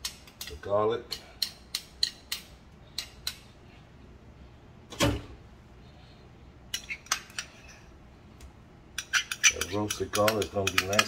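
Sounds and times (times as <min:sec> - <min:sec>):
kitchen utensils clicking and tapping: 0:06.7 - 0:07.8, 0:09.0 - 0:11.0.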